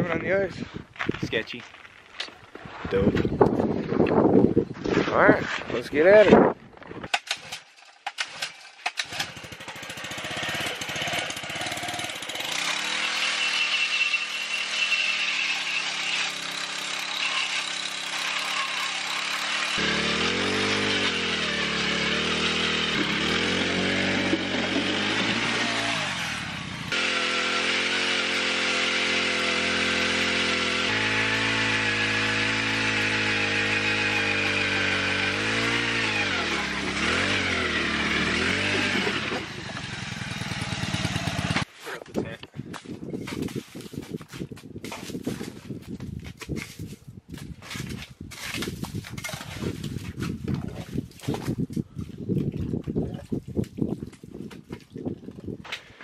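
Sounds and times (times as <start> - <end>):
ice auger engine drilling: 7.1 - 41.7, 47.6 - 51.6.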